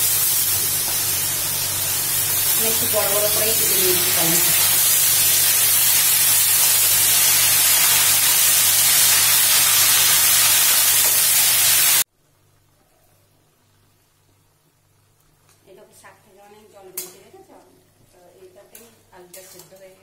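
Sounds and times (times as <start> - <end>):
food frying in hot oil: 0.0 - 12.1.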